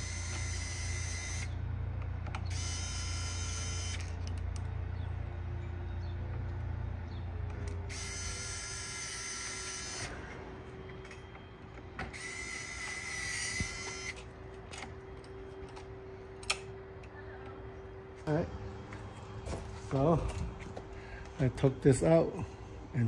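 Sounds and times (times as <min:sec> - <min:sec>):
electric screwdriver whining: 0:00.0 - 0:01.6, 0:02.4 - 0:04.4, 0:07.7 - 0:10.2, 0:12.1 - 0:14.3.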